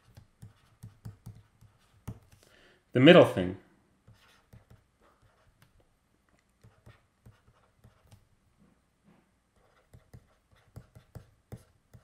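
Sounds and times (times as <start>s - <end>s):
stylus tapping on tablet: 0.0s - 2.5s, 9.8s - 12.0s.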